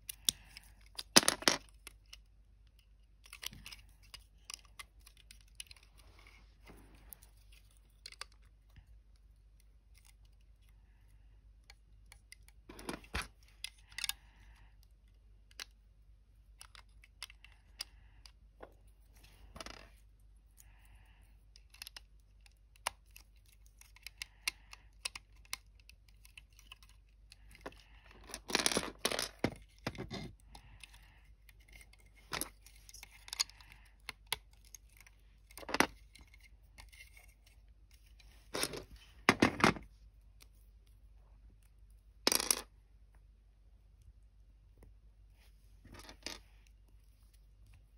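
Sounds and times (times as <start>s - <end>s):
plastic bricks clicking and snapping: 7.9s - 8.8s, 11.6s - 14.4s, 21.6s - 31.0s, 38.5s - 39.9s.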